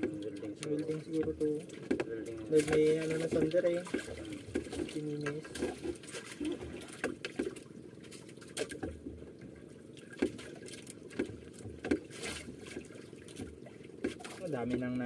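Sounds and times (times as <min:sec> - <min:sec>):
sharp knocks and clicks: 0:00.0 - 0:04.9, 0:11.1 - 0:12.1
water lapping against boat hull: 0:00.0 - 0:15.0.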